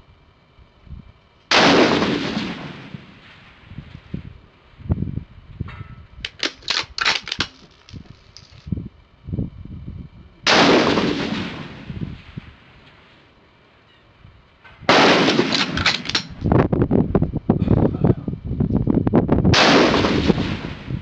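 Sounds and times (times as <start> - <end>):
rifle shot echoing: 1.5 - 3.6, 10.5 - 12.0, 14.9 - 16.4, 19.5 - 20.9
rifle bolt metallic clicks: 6.2 - 8.6, 15.5 - 16.5.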